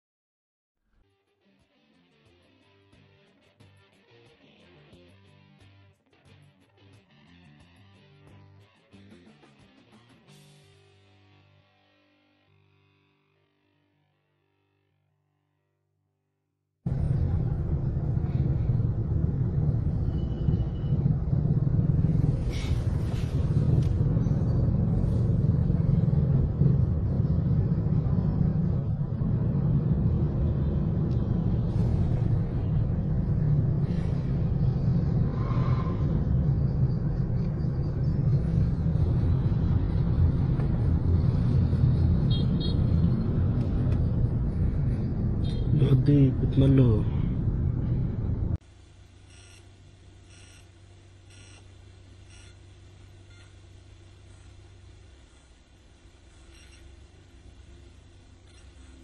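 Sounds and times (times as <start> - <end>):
vehicle engines running close by: 16.9 - 48.6
city road traffic rumble: 16.9 - 49.2, 50.8 - 59.0.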